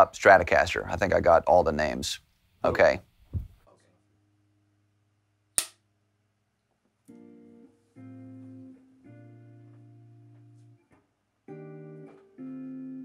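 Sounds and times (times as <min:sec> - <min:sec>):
sharp click: 0:05.6 - 0:05.8
guitar chords strummed: 0:07.1 - 0:10.9, 0:11.5 - 0:13.0.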